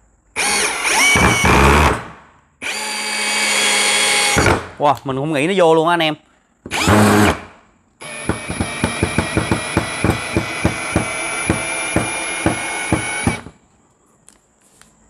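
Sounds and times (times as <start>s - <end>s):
drill knocking: 0.4s - 2.0s, 2.6s - 4.6s, 6.7s - 7.4s, 8.0s - 13.6s
drill driving screw into wood: 0.4s - 4.6s, 6.7s - 13.6s.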